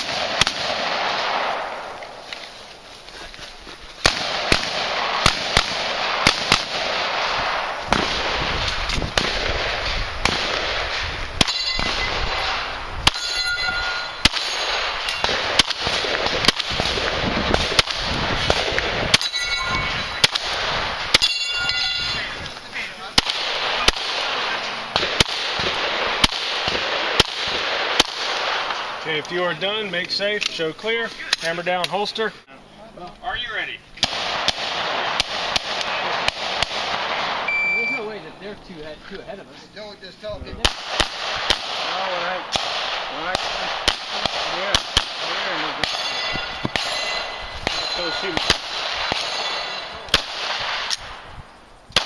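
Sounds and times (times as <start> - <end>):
pistol shots: 0.0 - 2.2, 4.0 - 19.4, 20.1 - 21.5, 23.2 - 29.0, 34.0 - 38.0, 40.6 - 51.2
steel targets ringing: 11.4 - 12.2, 13.1 - 15.4, 19.2 - 20.3, 21.1 - 22.3, 45.7 - 50.1.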